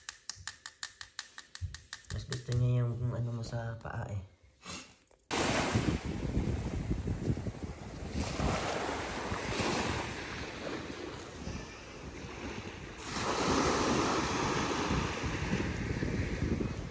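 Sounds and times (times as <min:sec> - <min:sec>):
small waves breaking on sand: 0:05.3 - 0:16.9
wind buffeting microphone: 0:05.4 - 0:16.9.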